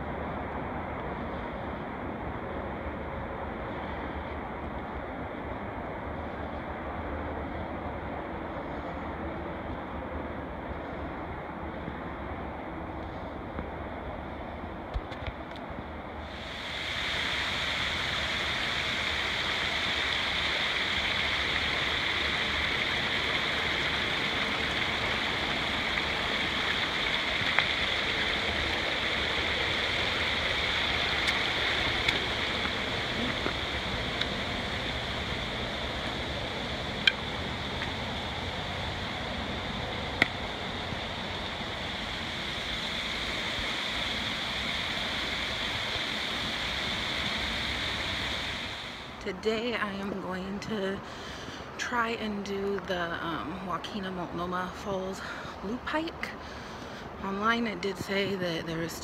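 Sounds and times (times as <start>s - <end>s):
stream trickling over rocks: 16.2s - 49.1s
small waterfall spilling: 16.3s - 49.2s.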